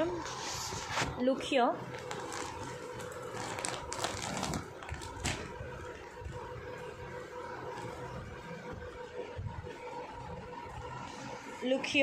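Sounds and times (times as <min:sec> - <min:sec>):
steady background hum: 0:00.0 - 0:12.0
plastic cover crinkling: 0:01.8 - 0:06.4
cloth rustling: 0:01.9 - 0:05.7.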